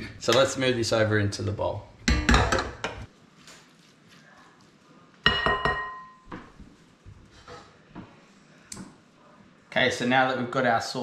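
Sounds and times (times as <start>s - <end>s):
kitchenware clinking: 2.0s - 3.1s, 5.2s - 6.5s.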